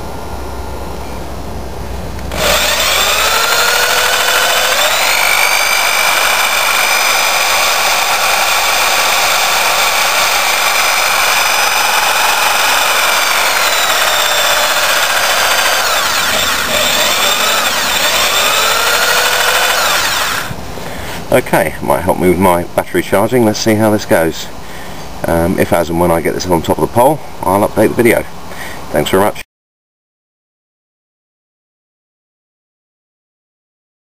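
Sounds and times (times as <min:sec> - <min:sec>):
electric drill whining: 0:02.2 - 0:20.6.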